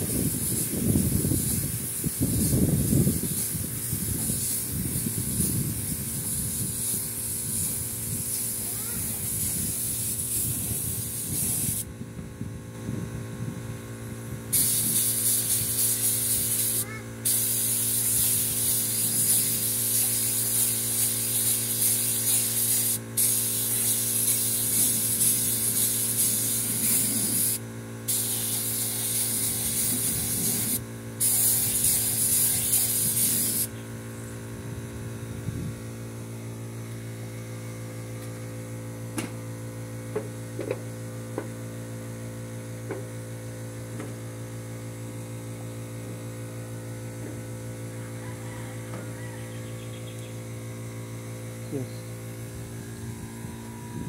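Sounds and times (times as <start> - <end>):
spray gun hissing: 0.0 - 11.8, 14.5 - 33.7
steady low hum: 0.0 - 54.0.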